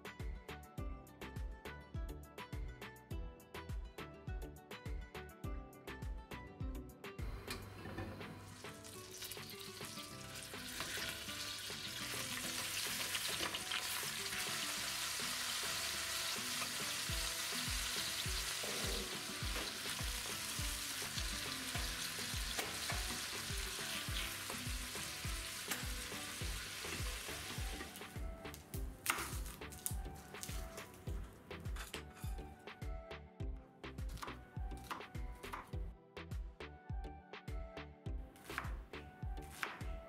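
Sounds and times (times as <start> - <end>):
chicken sizzling in butter: 8.1 - 28.2.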